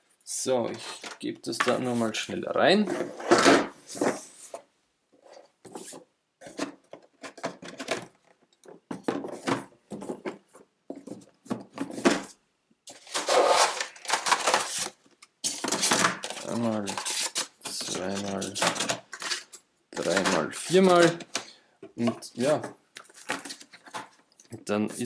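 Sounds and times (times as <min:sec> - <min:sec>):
cardboard boxes rustling and knocking: 0:05.7 - 0:14.8.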